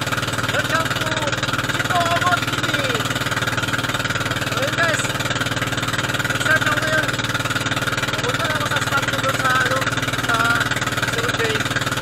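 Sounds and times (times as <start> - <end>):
boat engine running: 0.0 - 12.0
man talking: 0.5 - 3.1, 4.5 - 5.1, 6.3 - 7.2, 8.1 - 11.7.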